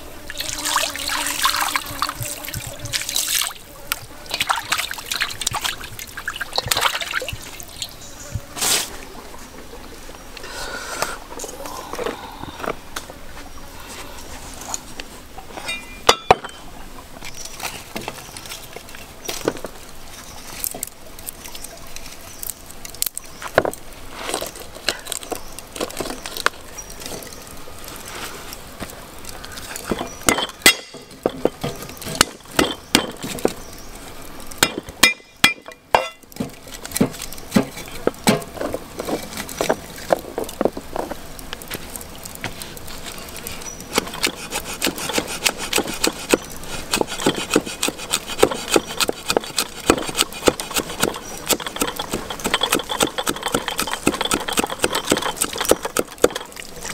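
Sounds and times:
utensils knocking and clinking: 15.6s - 16.6s, 51.0s - 56.6s
cleaver chopping on wooden block: 44.2s - 51.8s.

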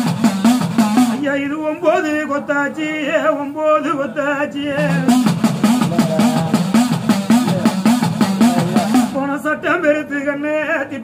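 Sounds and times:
man singing: 0.0s - 11.0s
hourglass drum pitch-bending strokes: 4.8s - 9.2s.

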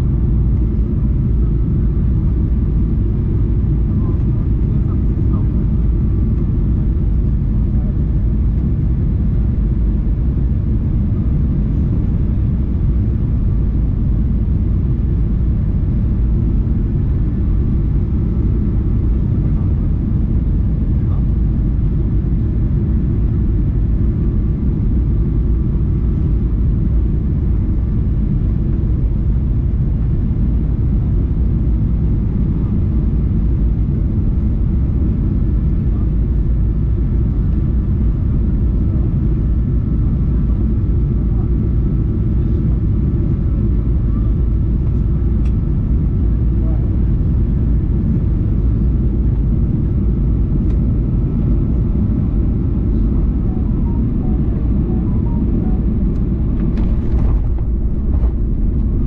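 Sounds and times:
jet engines and airflow rumble: 0.0s - 59.0s
faint whining tones: 51.3s - 59.0s.

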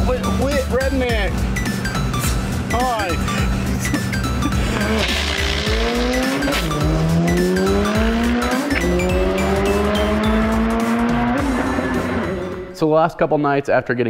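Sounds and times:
car engine accelerating at full throttle: 4.4s - 12.8s.

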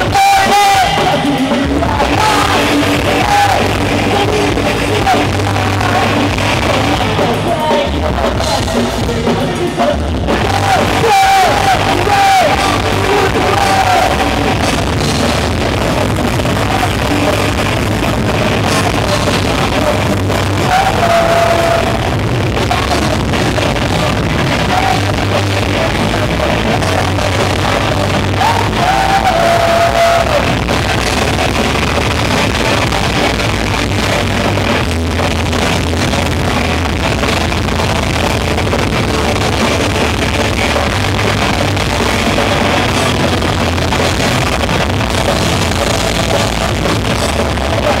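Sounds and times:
electric guitar bending notes: 0.0s - 48.0s
live rock band playing loudly: 0.0s - 48.0s.

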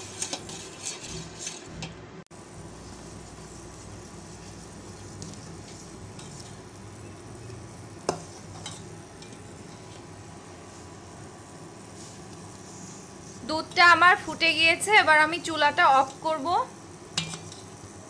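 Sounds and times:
pudding simmering hiss: 0.0s - 1.8s, 2.4s - 18.0s
spoon scraping pot: 0.0s - 2.0s, 4.4s - 6.6s.

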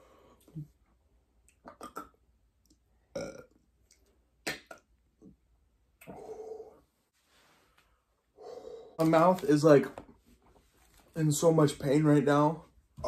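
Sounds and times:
person making throat sounds: 1.6s - 2.3s, 3.1s - 3.6s, 4.4s - 4.9s.

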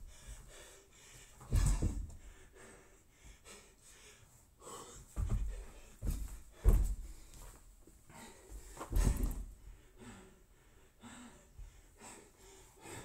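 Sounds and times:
hard breathing: 0.0s - 13.0s
body thudding on rubber floor: 1.4s - 2.3s, 5.2s - 7.6s, 8.6s - 9.6s.

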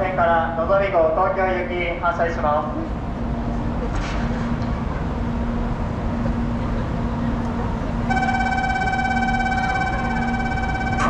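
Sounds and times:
open-air station noise: 0.0s - 11.0s
train humming and rumbling: 0.0s - 11.0s
electronic platform tone: 8.1s - 11.0s.

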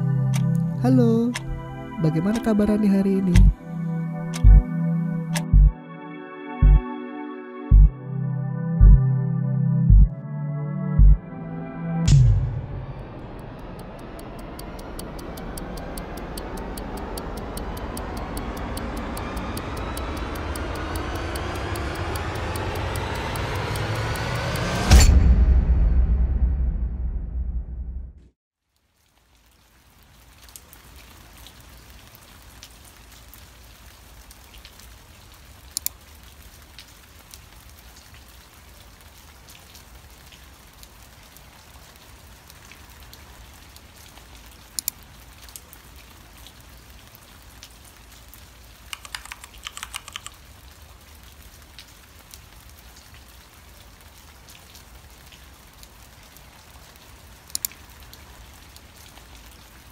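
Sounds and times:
low hum: 3.4s - 5.8s, 7.7s - 28.2s
keyboard typing: 48.9s - 50.4s
mouse clicks: 48.9s - 50.4s.

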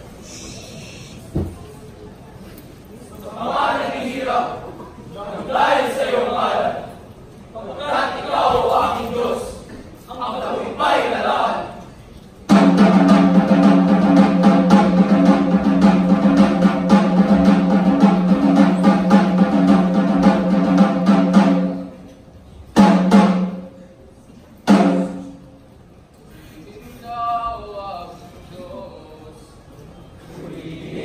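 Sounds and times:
single drum strikes: 12.5s - 21.8s, 24.7s - 25.4s
drum roll: 12.5s - 22.0s, 22.8s - 23.7s, 24.7s - 25.5s.

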